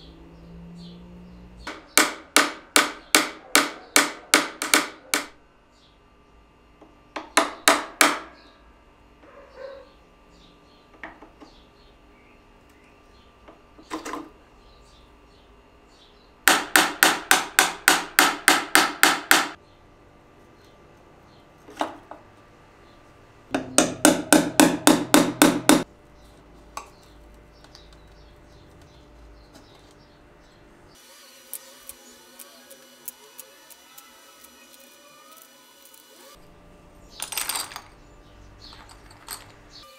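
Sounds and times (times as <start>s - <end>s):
chisel knocking on wood: 1.7s - 5.3s, 7.2s - 8.3s, 16.4s - 19.6s, 23.5s - 25.9s.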